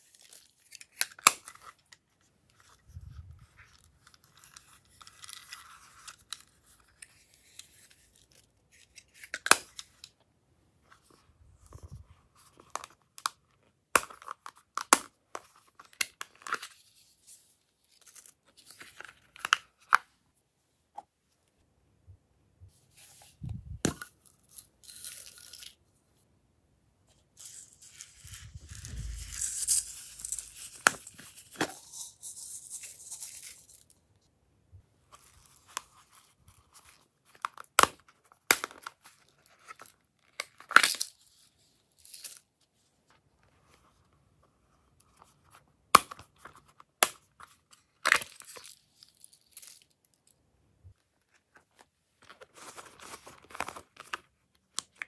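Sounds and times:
rustling and scraping: 0:27.0 - 0:34.0.

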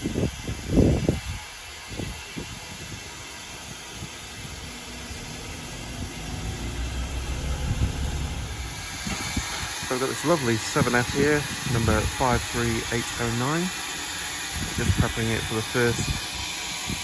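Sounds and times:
steam hissing: 0:00.0 - 0:17.0
low rumble: 0:04.4 - 0:09.5.

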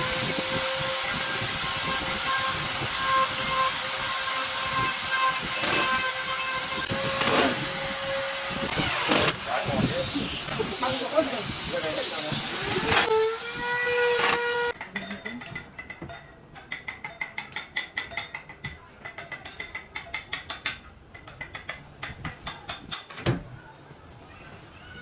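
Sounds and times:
drill motor whine: 0:00.0 - 0:14.7
rapid even drill clicks: 0:05.6 - 0:05.9, 0:08.7 - 0:09.4, 0:14.2 - 0:14.5.

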